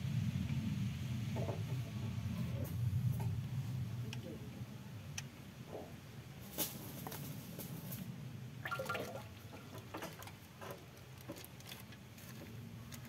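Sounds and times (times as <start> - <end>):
oil trickling into metal funnel: 8.6 - 10.4.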